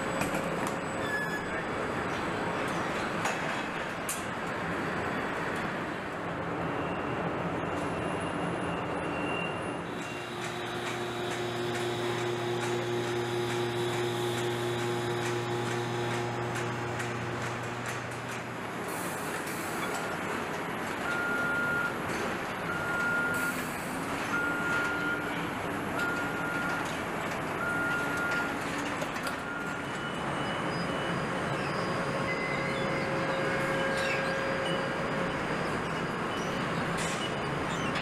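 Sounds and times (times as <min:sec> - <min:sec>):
factory machinery noise: 0:00.0 - 0:38.0
faint machine whining: 0:09.9 - 0:20.2, 0:29.4 - 0:38.0
electronic warning beeps: 0:26.0 - 0:26.9, 0:29.4 - 0:38.0.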